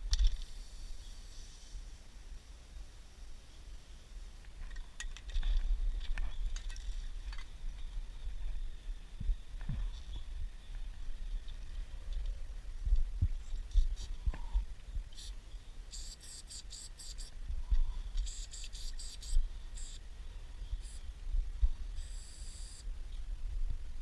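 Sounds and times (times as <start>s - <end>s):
spray paint can hissing: 15.9s - 17.3s, 18.2s - 20.0s, 22.0s - 22.9s.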